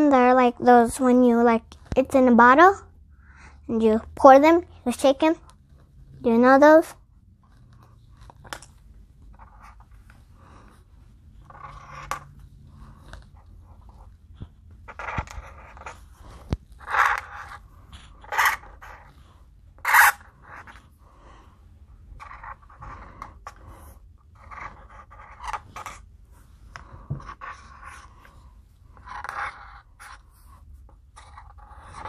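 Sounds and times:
marker scratching on paper: 0:09.3 - 0:20.9, 0:22.2 - 0:32.0.

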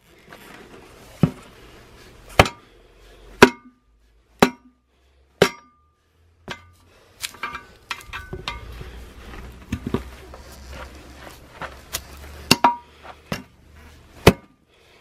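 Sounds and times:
metal clinks and scraping: 0:06.5 - 0:11.1.

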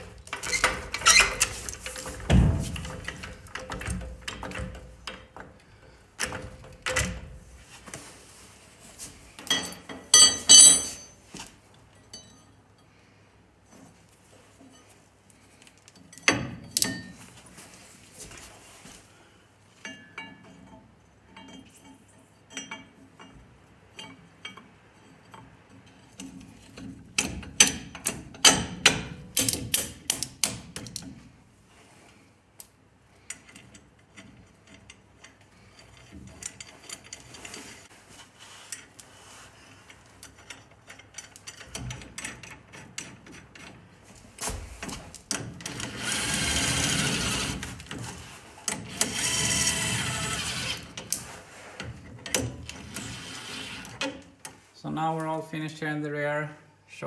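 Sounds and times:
metal parts clinking and knocking: 0:09.4 - 0:11.2, 0:25.2 - 0:31.2, 0:39.7 - 0:54.5.

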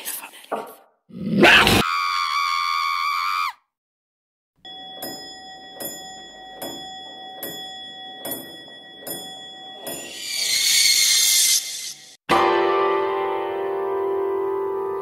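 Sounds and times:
high ringing tones: 0:04.6 - 0:12.2
clock ticking with chime: 0:04.7 - 0:10.2.

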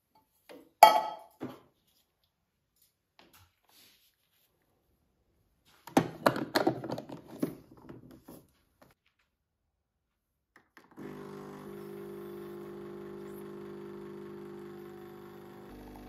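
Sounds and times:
espresso pump buzzing hum: 0:10.9 - 0:16.0.

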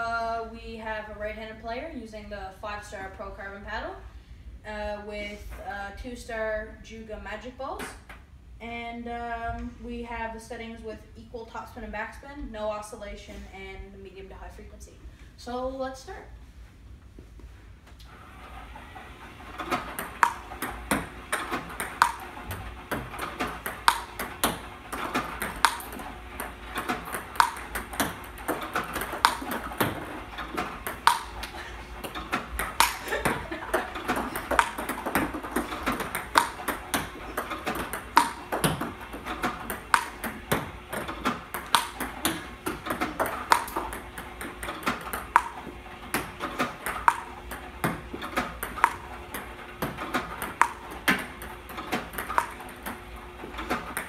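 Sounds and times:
ball bouncing clicks: 0:19.6 - 0:54.0
paddle hitting ball pop: 0:19.7 - 0:53.0.

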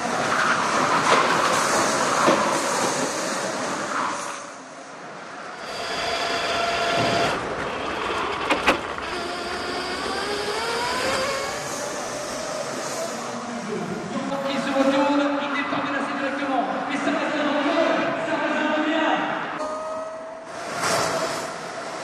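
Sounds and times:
electric kart motors whining: 0:05.5 - 0:14.7.

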